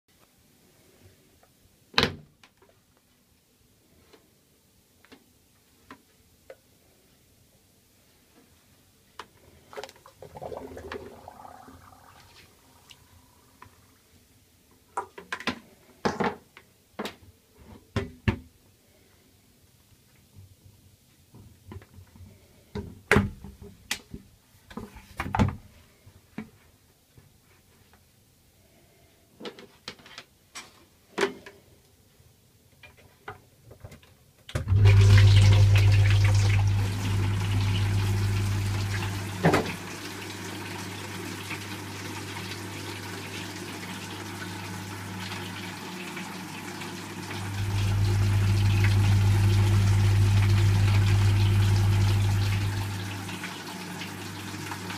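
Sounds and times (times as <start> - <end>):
water pump humming: 10.0 - 13.9, 34.6 - 54.9.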